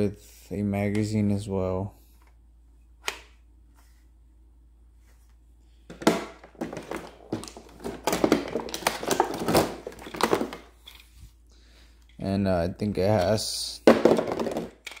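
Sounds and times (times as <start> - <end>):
hard plastic clattering and crinkling: 5.9 - 11.2, 13.8 - 15.0.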